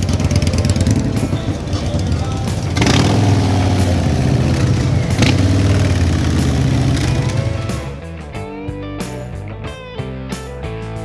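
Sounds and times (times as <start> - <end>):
motorcycle engines running: 0.0 - 8.1
music: 0.0 - 11.0.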